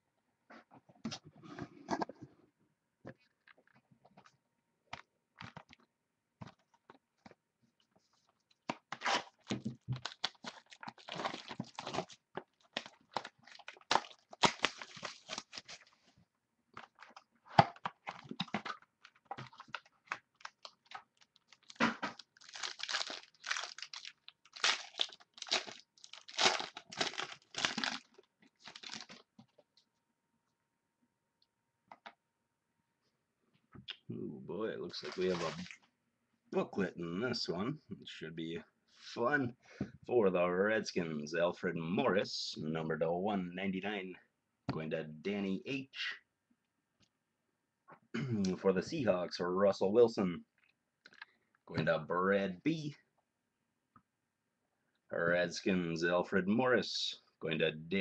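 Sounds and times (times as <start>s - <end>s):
card pack tearing: 8.9s - 15.9s, 16.9s - 29.2s, 35.0s - 35.7s
wrapper crinkling and rustling: 8.9s - 16.0s, 16.8s - 29.3s, 35.0s - 35.8s.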